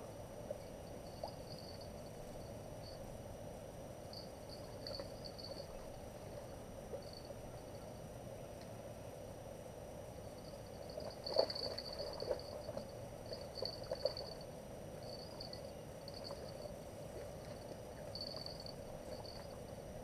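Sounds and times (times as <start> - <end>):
water splashing: 10.9 - 14.3.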